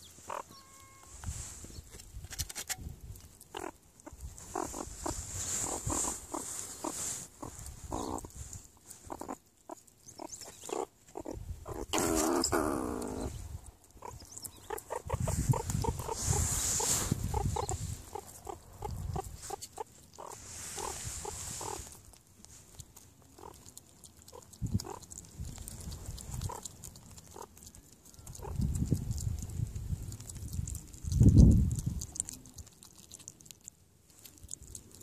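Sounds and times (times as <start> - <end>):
meerkats squeaking and grunting: 0.0 - 1.4, 3.5 - 22.2, 23.4 - 28.8
rustling handling noise: 4.2 - 9.1, 15.3 - 18.4.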